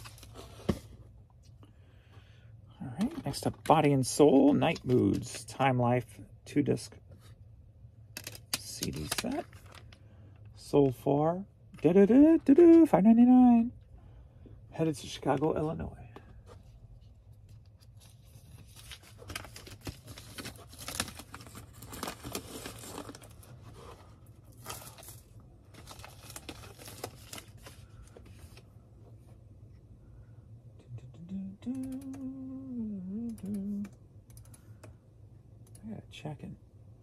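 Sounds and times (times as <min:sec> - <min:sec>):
man humming: 0:30.9 - 0:33.9.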